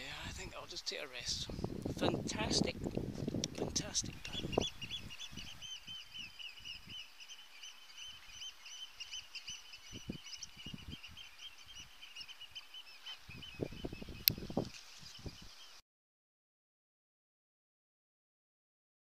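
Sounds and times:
songbird warbling: 3.4s - 15.8s.

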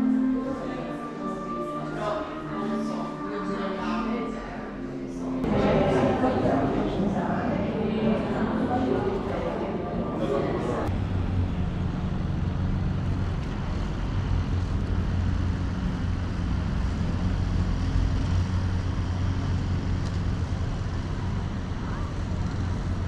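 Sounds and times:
low rumble with deep hum: 10.9s - 23.0s.

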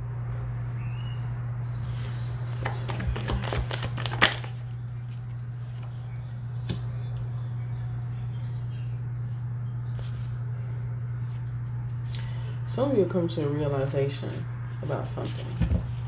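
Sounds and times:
steady low hum: 0.0s - 16.0s
cards shuffling: 1.8s - 6.8s
card snap: 2.6s - 4.5s.

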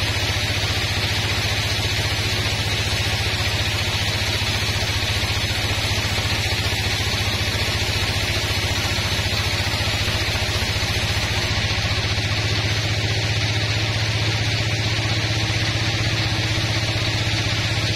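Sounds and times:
hiss of sawing: 0.0s - 14.2s
band saw machine hum: 0.0s - 17.9s.

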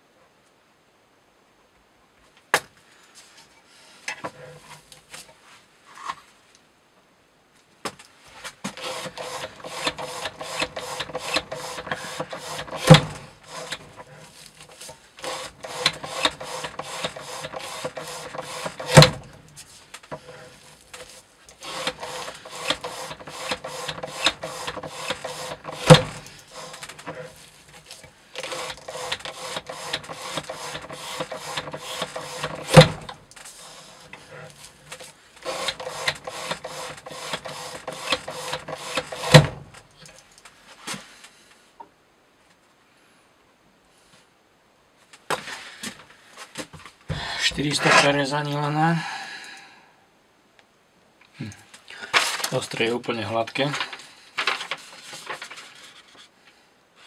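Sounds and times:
knife sawing through rope: 8.7s - 39.6s.

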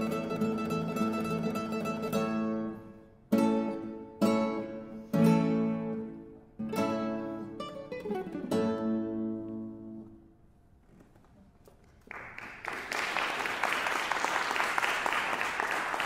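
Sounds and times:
classical guitars chord ringing: 0.0s - 10.3s
audience applause: 12.0s - 16.0s.

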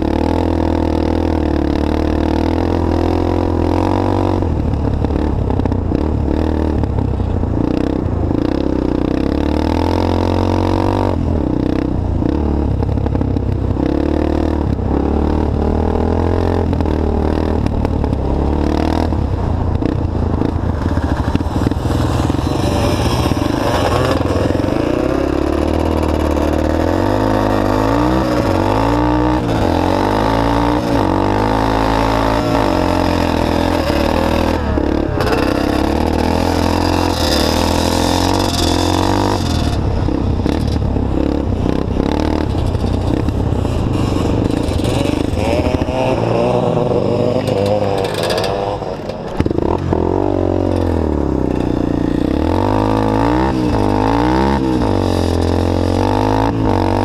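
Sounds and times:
vehicle engine revving: 13.8s - 51.6s
wind noise: 14.6s - 50.8s.

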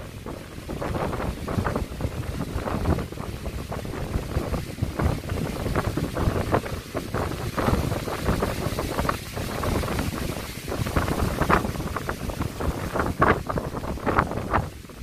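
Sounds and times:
strong wind gusts on microphone: 0.0s - 15.0s.

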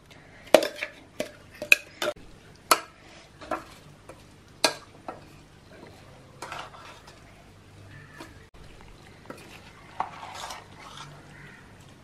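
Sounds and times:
spoon scraping metal pot: 0.6s - 7.2s, 9.3s - 11.3s.

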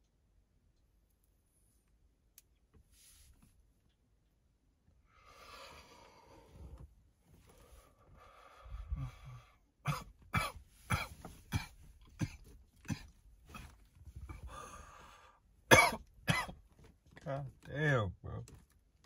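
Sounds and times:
man coughing: 9.8s - 13.8s, 15.7s - 16.6s.

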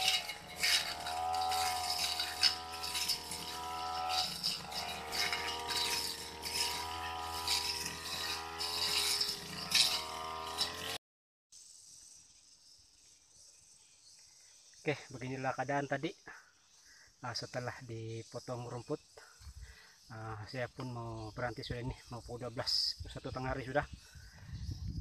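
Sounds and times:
crickets chirring: 0.0s - 10.7s, 11.6s - 25.0s
blade striking vegetation: 0.0s - 11.0s
brush cutter engine whining: 0.0s - 11.0s.

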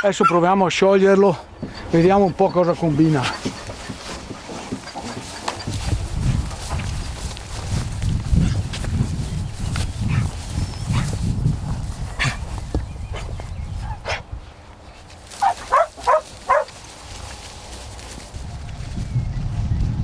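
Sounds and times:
dog yipping: 0.0s - 0.4s, 15.4s - 16.7s.

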